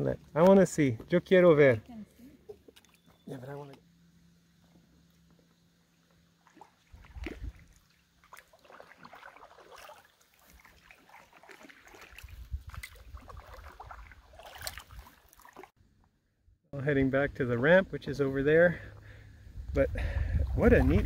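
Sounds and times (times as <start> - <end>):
water dripping off paddle: 6.4 - 15.6
kayak paddle splashing in water: 6.4 - 15.8
low rumbles: 18.8 - 21.0.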